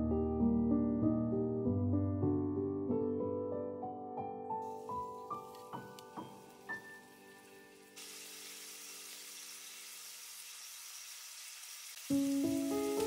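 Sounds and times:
soft piano music: 0.0 - 8.0, 12.0 - 13.0
bacon sizzling in oil: 4.6 - 13.0.

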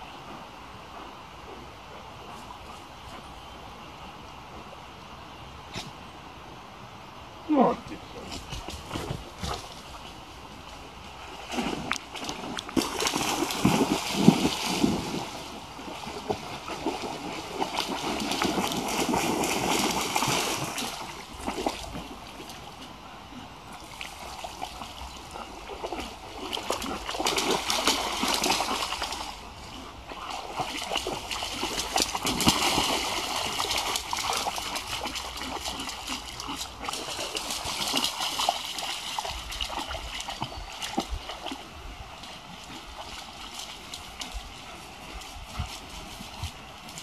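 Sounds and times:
dog splashing through water: 11.1 - 22.9, 23.7 - 47.0.

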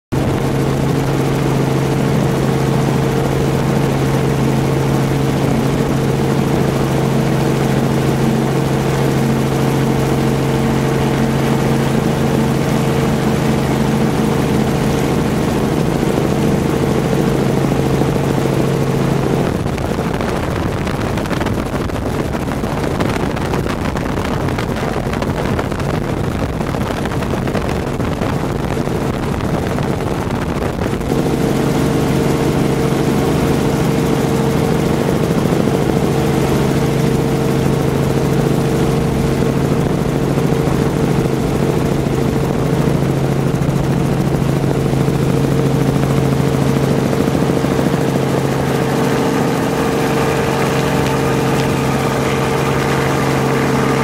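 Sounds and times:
aircraft engine droning: 0.2 - 54.0
rough rushing noise: 5.0 - 32.2, 47.2 - 54.0.

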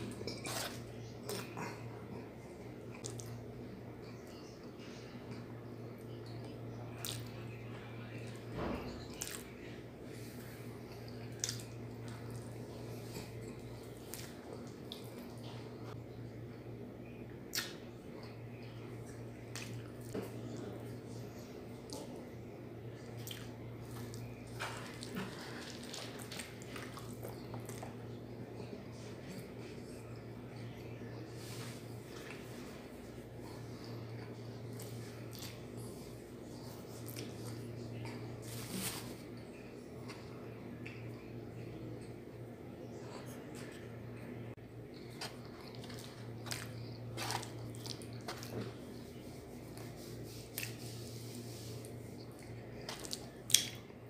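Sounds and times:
wet chewing sounds: 0.0 - 7.6, 9.0 - 16.0, 22.9 - 42.3, 44.6 - 54.0
low steady hum: 0.0 - 54.0
mouth chewing and smacking: 10.9 - 15.8, 23.0 - 28.2, 44.8 - 50.8, 51.8 - 54.0
fingers squishing wet food: 44.8 - 54.0.

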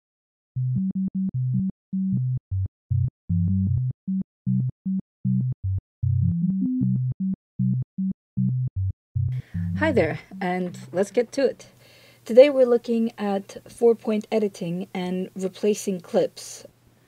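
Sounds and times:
synthesizer low notes: 0.6 - 11.0.

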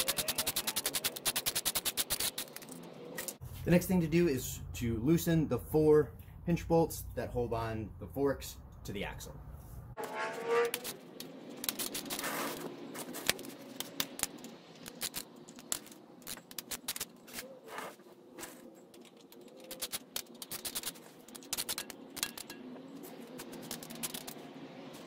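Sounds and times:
hand ratchet clicking: 0.0 - 2.7.

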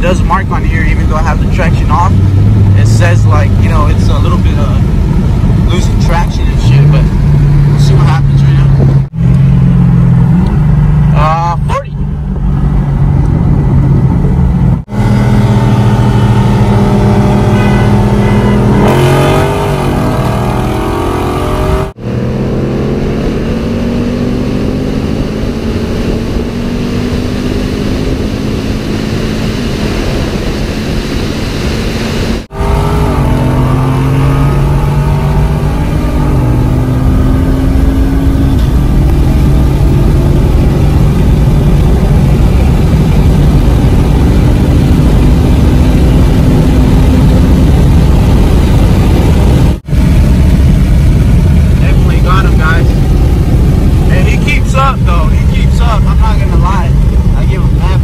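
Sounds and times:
wind noise: 0.0 - 11.1, 12.0 - 58.0
car engines accelerating: 0.0 - 58.0.

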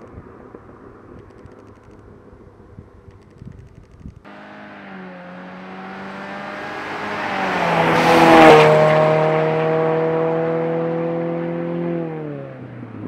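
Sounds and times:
car exhaust passing: 4.2 - 13.0.

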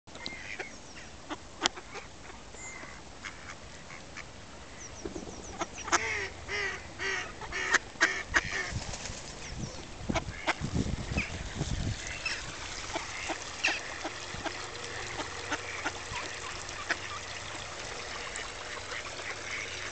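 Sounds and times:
ducks quacking: 5.5 - 8.8, 9.6 - 19.9.

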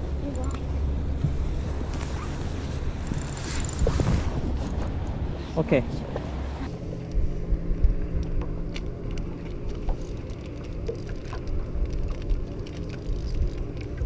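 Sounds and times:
outboard engine idling: 0.0 - 14.0
wind buffeting microphone: 0.8 - 6.6.

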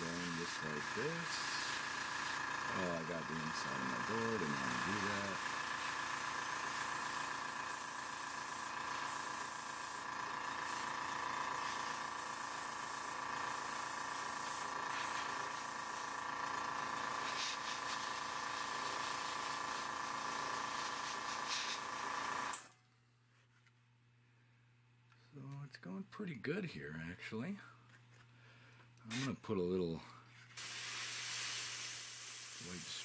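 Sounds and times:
airbrush spraying hiss: 0.0 - 22.6, 29.1 - 29.4, 30.6 - 33.0
compressor humming: 0.0 - 22.8.

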